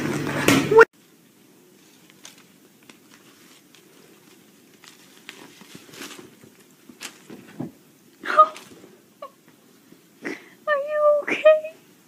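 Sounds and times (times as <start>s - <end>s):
bedding rustling: 1.6s - 9.9s.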